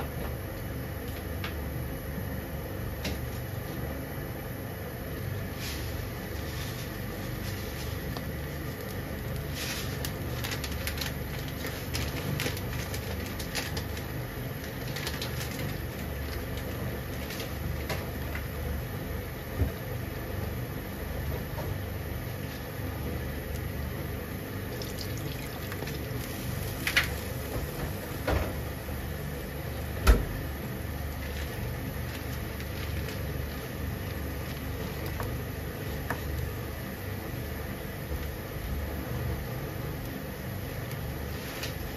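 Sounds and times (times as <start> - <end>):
water simmering in a frying pan: 24.5 - 28.0.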